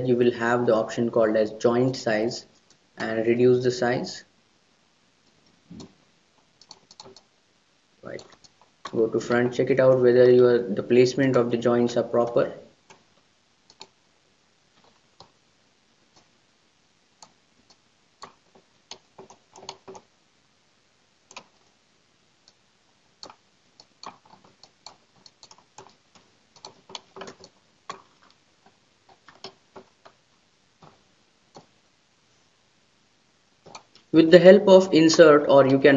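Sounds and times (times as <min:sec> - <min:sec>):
computer mouse clicking: 0:05.2 - 0:07.3, 0:08.1 - 0:09.0, 0:12.8 - 0:14.0, 0:14.8 - 0:15.4, 0:16.1 - 0:16.3, 0:17.2 - 0:20.1, 0:21.3 - 0:21.7, 0:23.2 - 0:30.2, 0:30.8 - 0:31.7, 0:33.6 - 0:34.1.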